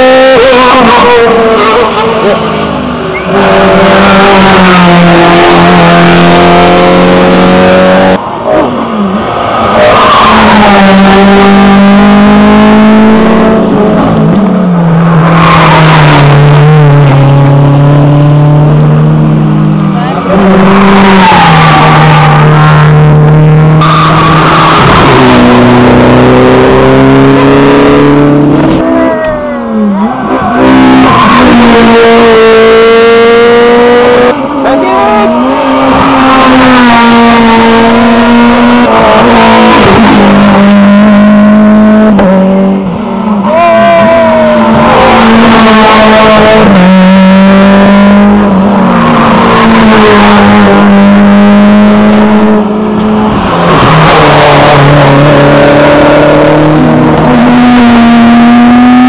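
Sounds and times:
race car engine at high revs: 0.0 - 59.0.

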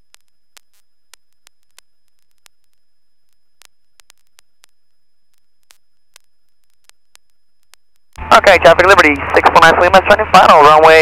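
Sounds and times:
faint high steady whine: 0.0 - 11.0
sharp static clicks: 0.0 - 11.0
radio intercom hiss: 8.2 - 11.0.

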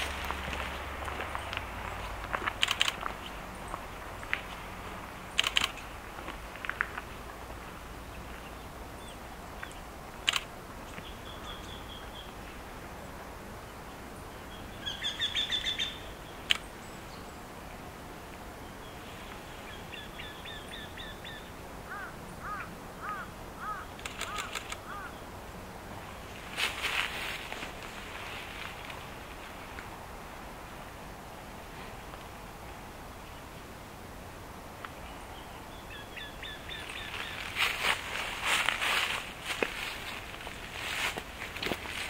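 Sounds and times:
sharp clicks: 2.3 - 3.1, 5.4 - 5.9, 9.6 - 10.5, 16.4 - 16.7, 24.0 - 24.9
birds singing repeated notes: 7.9 - 25.4, 34.8 - 42.0.

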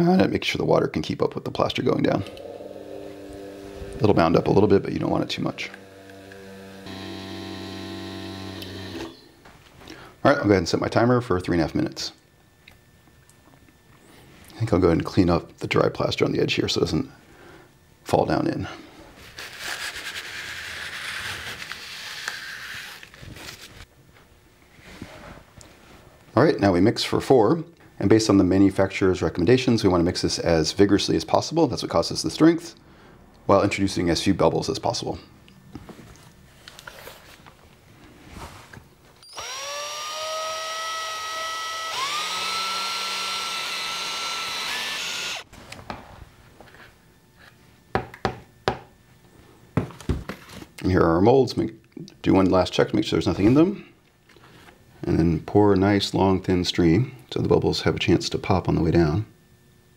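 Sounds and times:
drill mixing plaster: 5.1 - 9.2, 39.3 - 45.5.

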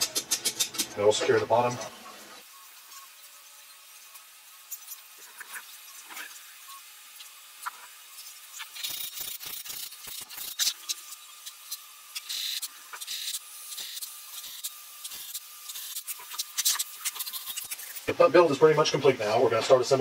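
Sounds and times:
metal clicks and scrapes: 0.0 - 1.0.

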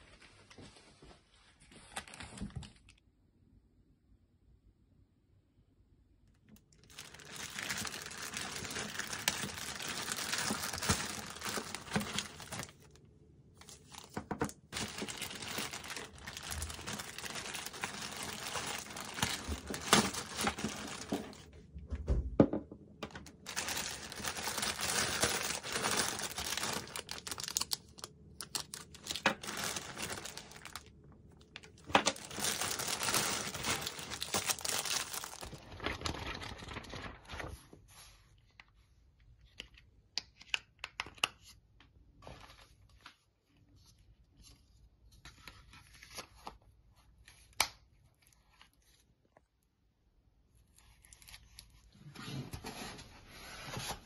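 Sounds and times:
plastic bags crinkling: 6.6 - 13.0, 13.6 - 21.6, 23.0 - 37.5.

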